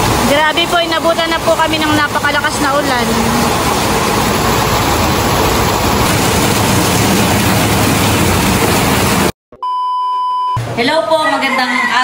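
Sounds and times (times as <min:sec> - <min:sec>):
heavy rain on metal roofs: 0:00.0 - 0:09.3
high test beep tone: 0:09.5 - 0:10.6.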